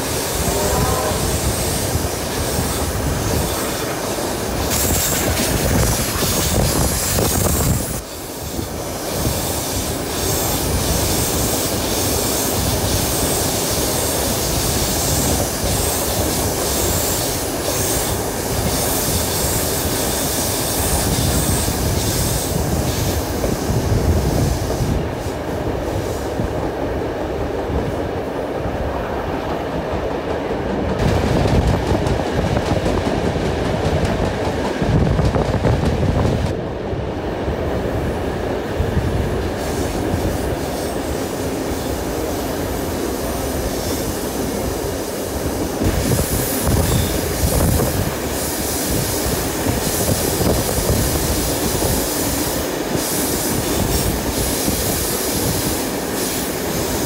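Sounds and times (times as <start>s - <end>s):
high hiss: 0.0s - 26.6s, 39.0s - 57.0s
train wheels rumbling on rail: 0.0s - 57.0s.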